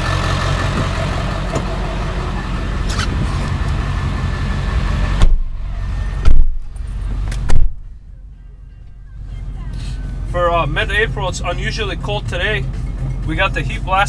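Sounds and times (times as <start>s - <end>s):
diesel engine idling: 0.0s - 14.0s
car door shutting: 2.8s - 3.3s, 5.2s - 8.0s
loud low thump: 5.1s - 8.0s.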